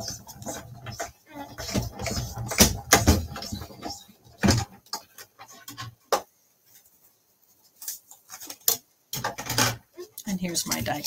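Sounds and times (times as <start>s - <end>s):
machine knocks and scrapes: 0.0s - 6.0s.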